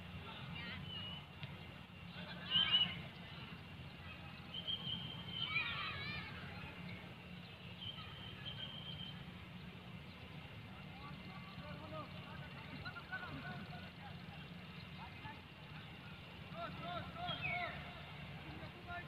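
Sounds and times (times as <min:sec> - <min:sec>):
footballers shouting: 0:02.0 - 0:06.9, 0:10.8 - 0:19.0.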